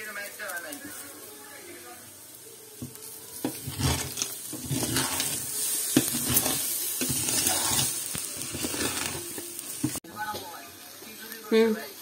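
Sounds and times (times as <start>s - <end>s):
water splashing and sizzling: 2.6s - 12.0s
wooden spoon scraping pot: 3.4s - 10.0s.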